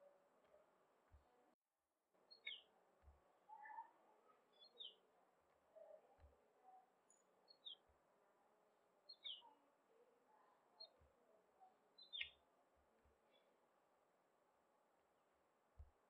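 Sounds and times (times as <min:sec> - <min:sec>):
faint high chirps falling in pitch: 0:02.3 - 0:02.7, 0:03.5 - 0:05.0, 0:09.1 - 0:09.5, 0:12.0 - 0:12.4.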